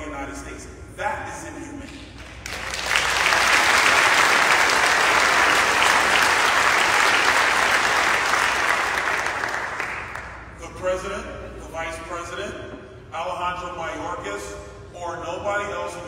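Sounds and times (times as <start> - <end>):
audience applauding: 2.0 - 10.4.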